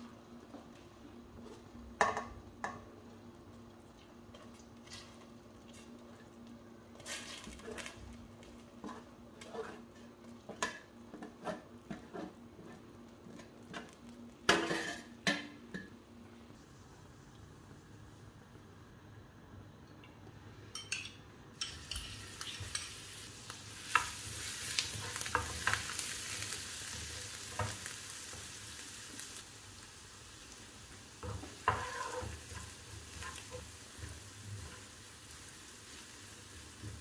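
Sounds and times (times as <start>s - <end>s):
metal spoon scraping and tapping: 20.8s - 23.0s.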